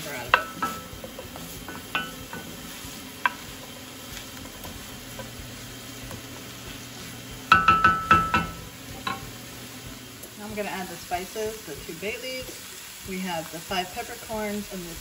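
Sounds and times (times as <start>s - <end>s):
vegetables sizzling in a pan: 0.0s - 15.0s
utensil knocking against pan: 7.5s - 9.3s.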